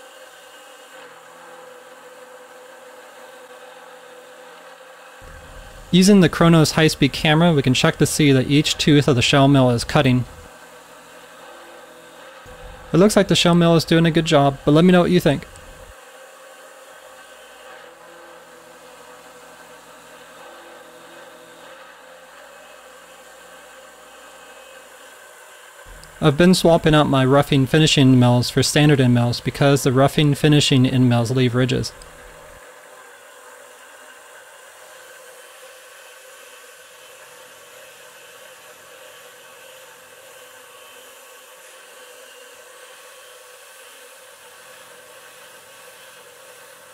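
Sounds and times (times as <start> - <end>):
faint steady tones: 5.2 - 10.5, 12.5 - 15.9, 25.9 - 32.6
milling machine whirring: 5.2 - 32.6.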